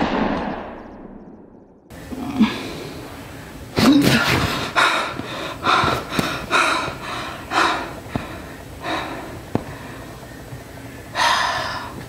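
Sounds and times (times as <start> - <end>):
woman breathing hard: 4.4 - 10.3, 11.1 - 12.0.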